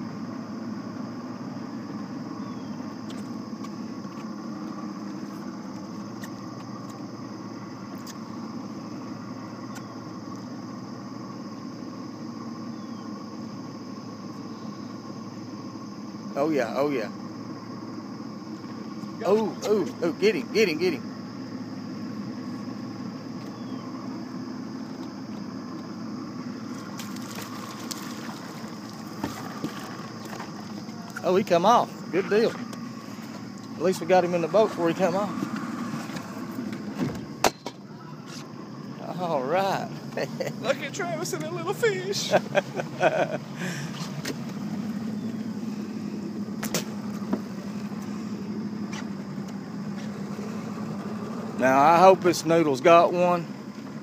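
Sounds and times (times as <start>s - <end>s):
boat motor running: 0.0s - 54.0s
light knocks on boat: 29.2s - 30.5s.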